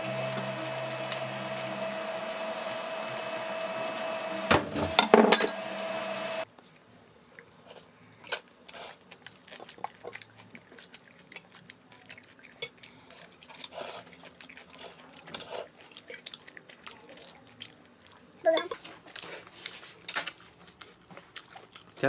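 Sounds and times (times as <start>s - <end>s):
dishes and utensils clinking: 4.7s - 5.7s, 18.5s - 18.9s.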